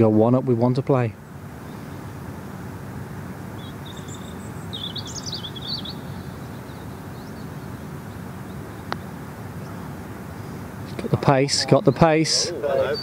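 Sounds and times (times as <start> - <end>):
low outdoor background noise: 0.0 - 13.0
bird chirping: 3.5 - 13.0.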